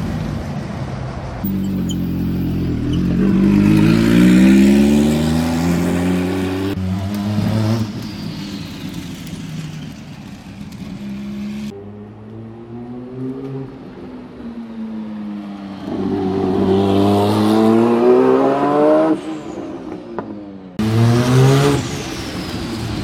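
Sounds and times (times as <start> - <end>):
car engine revving up: 1.4 - 9.0.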